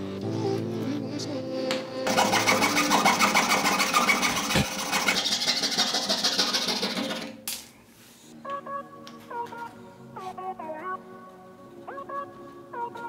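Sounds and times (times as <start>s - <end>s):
fret saw cutting wood: 2.1s - 7.4s.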